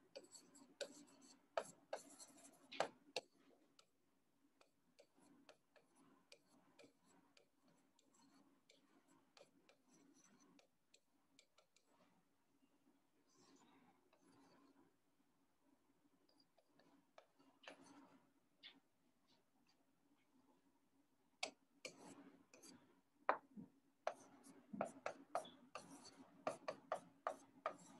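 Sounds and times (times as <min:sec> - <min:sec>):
pen tapping on whiteboard screen: 0:00.1 - 0:03.9, 0:04.6 - 0:12.0, 0:16.6 - 0:18.0, 0:21.4 - 0:22.7, 0:23.3 - 0:27.9.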